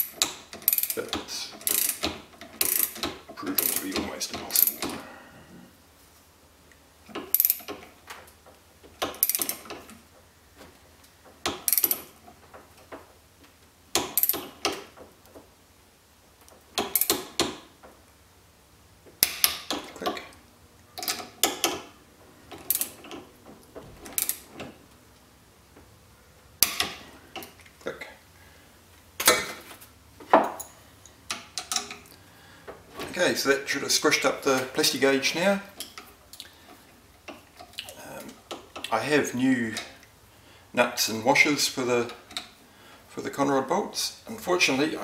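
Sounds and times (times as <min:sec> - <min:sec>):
torque wrench ratchet clicks: 0:00.1 - 0:01.0, 0:01.6 - 0:03.9, 0:07.3 - 0:07.7.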